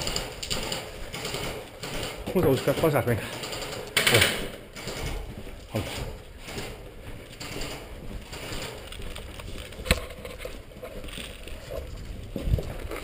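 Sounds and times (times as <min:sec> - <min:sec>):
footsteps on concrete floor: 0:04.4 - 0:13.0.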